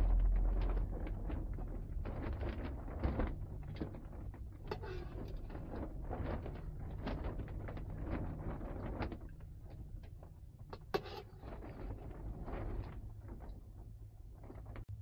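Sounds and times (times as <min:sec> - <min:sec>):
steady low rumble: 0:00.0 - 0:15.0
utensils scraping a metal pot: 0:04.6 - 0:06.6, 0:10.8 - 0:12.0.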